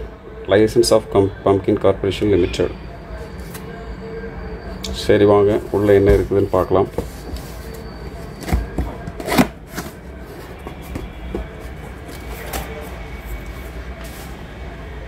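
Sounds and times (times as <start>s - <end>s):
cardboard box scraping and rustling: 5.6s - 14.4s.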